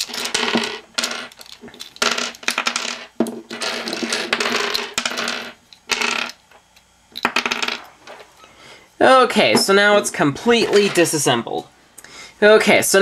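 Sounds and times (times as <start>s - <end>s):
plastic pieces clattering on wooden table: 0.0s - 6.4s, 7.2s - 8.3s
plastic puzzle pieces clicking: 1.3s - 2.7s.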